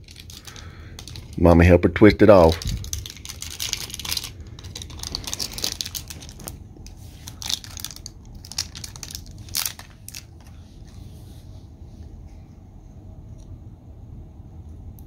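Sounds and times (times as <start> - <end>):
wrapper crinkling and tearing: 0.0 - 1.4, 2.4 - 10.6.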